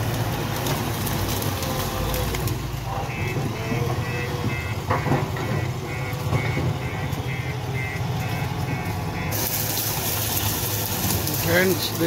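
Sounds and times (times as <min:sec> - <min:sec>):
diesel engine working under load: 0:00.0 - 0:12.0
machine pushing brush and rubble: 0:00.0 - 0:12.0
warning beeper: 0:02.9 - 0:09.6
hiss: 0:09.3 - 0:12.0.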